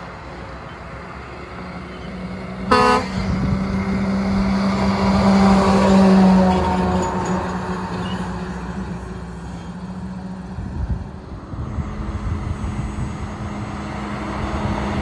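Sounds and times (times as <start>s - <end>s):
truck diesel engine drone: 0.0s - 15.0s
truck horn toot: 2.7s - 3.2s.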